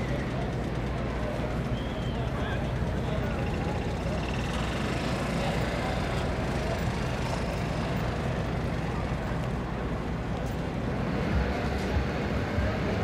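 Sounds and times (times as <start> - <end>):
constant low rumble: 0.0 - 13.0
murmur of distant voices: 0.0 - 13.0.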